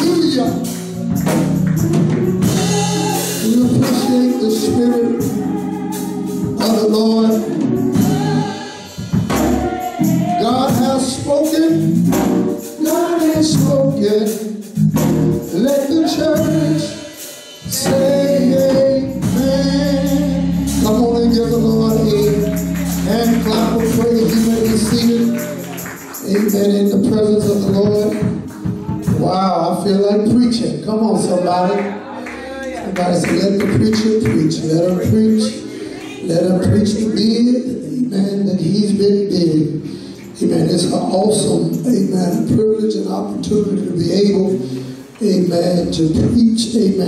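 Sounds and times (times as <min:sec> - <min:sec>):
instrumental backing: 0:00.0 - 0:47.0
man singing gospel song: 0:00.0 - 0:47.0
tambourine shaking: 0:17.7 - 0:27.7.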